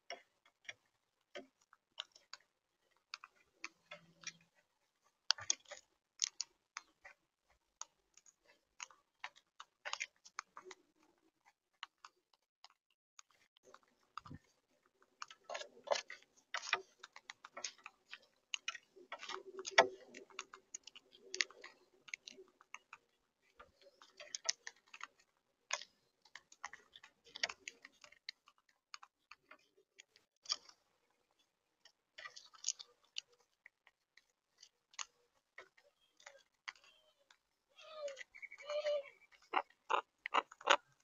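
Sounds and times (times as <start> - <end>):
beaks pecking at feeder tray: 13.6 - 41.0
parakeets cracking seeds: 34.6 - 41.0.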